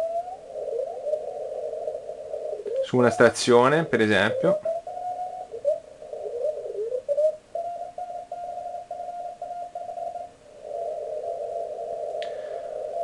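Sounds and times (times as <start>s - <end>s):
radio band noise: 0.0s - 7.3s, 9.9s - 13.0s.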